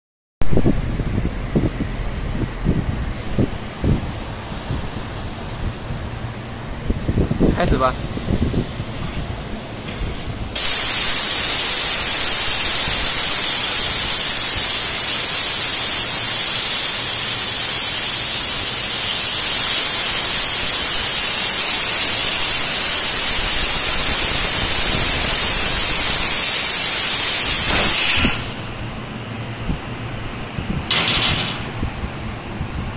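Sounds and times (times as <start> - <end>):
laser cutter gas hiss: 7.5 - 29.2.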